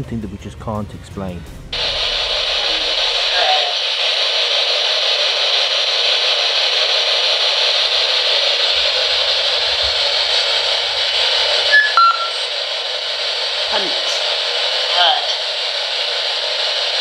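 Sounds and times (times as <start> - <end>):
loud static hiss: 1.7 - 17.0
brief electronic tones: 11.7 - 12.4.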